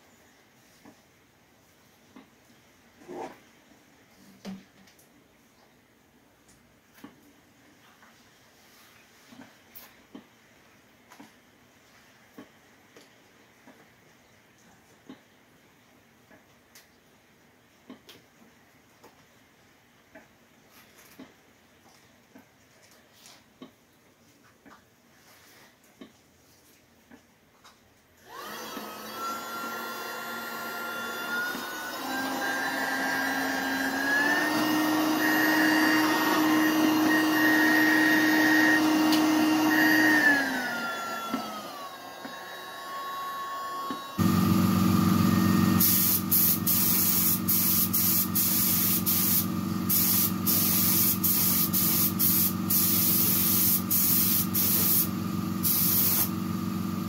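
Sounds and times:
small blower motor whining: 28.2s - 57.0s
spray gun hissing in bursts: 44.2s - 57.0s.

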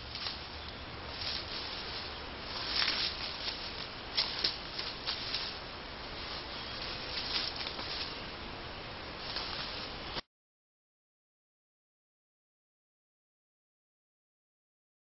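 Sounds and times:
animal rustling through leaves: 0.0s - 10.2s
steady low hiss: 0.0s - 10.2s.

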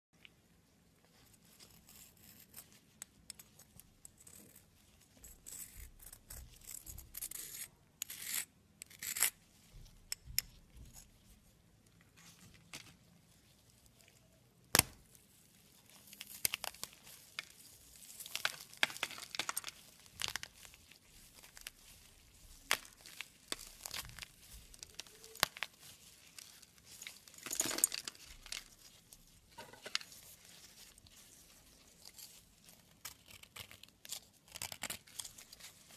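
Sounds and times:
soap chunks crunching: 18.1s - 28.9s.

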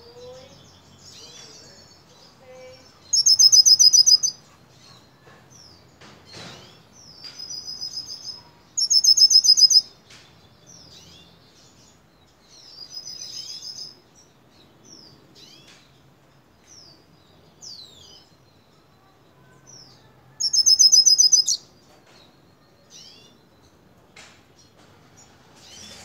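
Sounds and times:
bird rapid trill: 3.1s - 4.3s, 8.8s - 9.8s, 20.4s - 21.6s
bird chirping and whistling: 3.1s - 4.4s, 8.8s - 9.9s, 20.4s - 21.6s.

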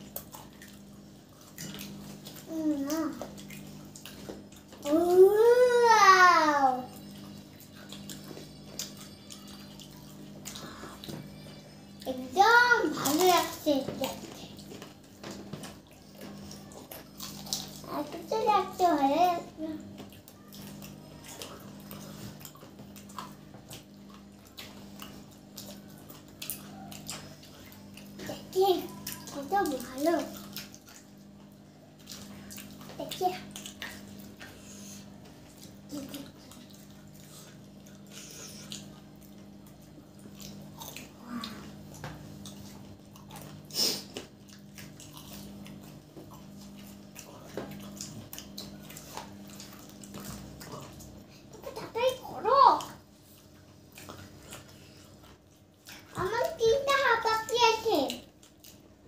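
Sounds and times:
people chewing crunchy food: 0.0s - 59.0s
steady low hum: 0.0s - 59.0s.

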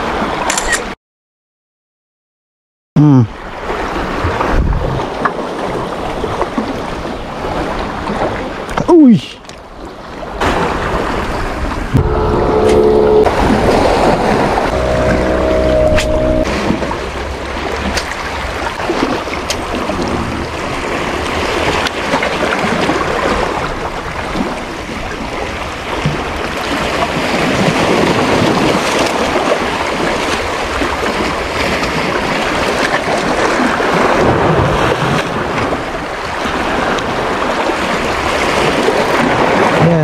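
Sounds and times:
wind on microphone: 3.8s - 8.2s, 10.4s - 21.6s
sea waves washing against rocks: 9.7s - 12.0s, 16.5s - 40.0s.

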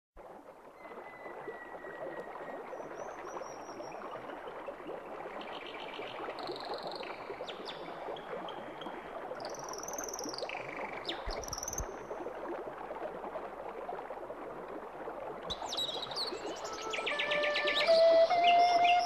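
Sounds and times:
brook water trickling: 0.2s - 19.0s
high chirps and whistles: 15.5s - 19.0s.

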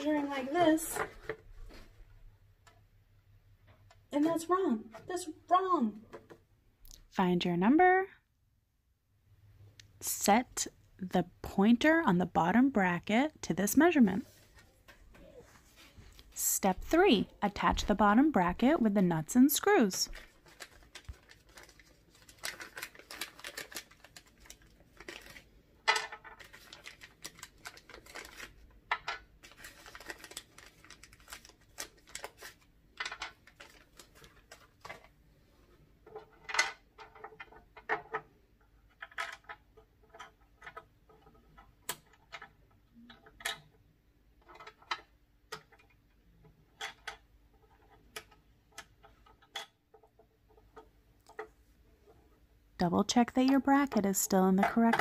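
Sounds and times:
paper rustling: 20.1s - 25.5s, 26.2s - 28.6s, 29.4s - 35.1s.

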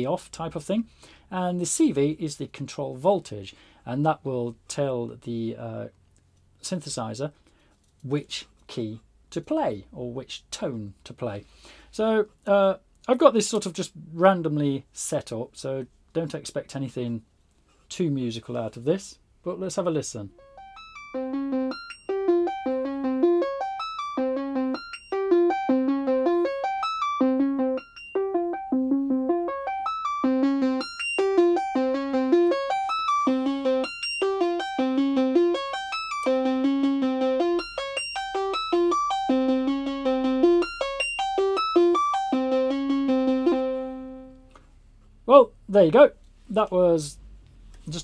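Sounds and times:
synthesizer playing stepped sequence: 20.4s - 44.5s.

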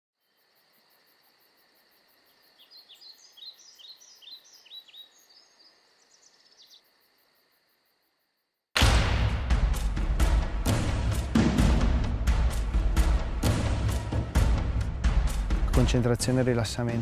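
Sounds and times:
faint insect hum: 0.2s - 8.7s
bird chirping: 2.1s - 7.2s.

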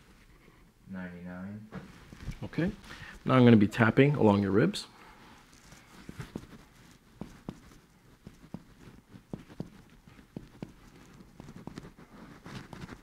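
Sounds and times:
soft finger taps on chest: 6.0s - 11.9s.

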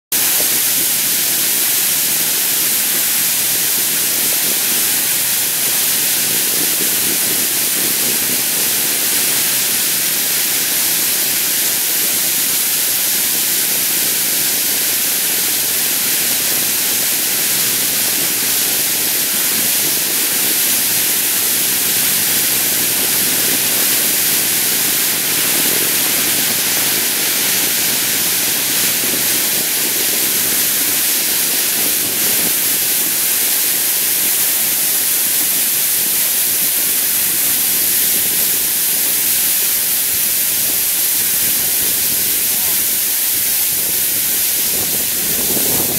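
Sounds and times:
sled runners hissing over snow: 0.1s - 45.9s.

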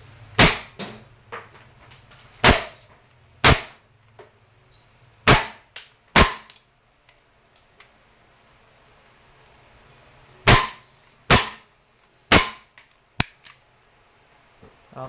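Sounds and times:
bb pistol shots: 0.4s - 0.9s, 2.4s - 2.8s, 3.4s - 3.8s, 5.2s - 6.6s, 10.4s - 11.7s, 12.3s - 13.5s.

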